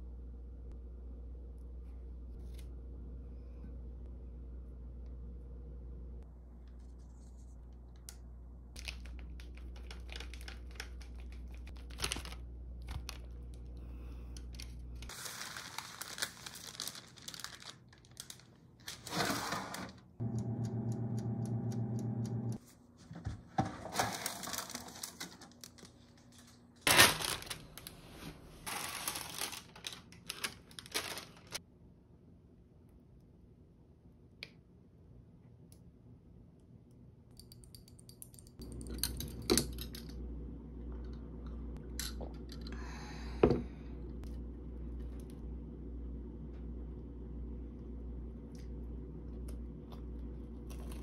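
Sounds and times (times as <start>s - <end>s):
baking paper crinkling: 8.8s - 13.8s, 14.4s - 20.1s, 22.6s - 31.6s
clicks: 20.2s - 22.6s.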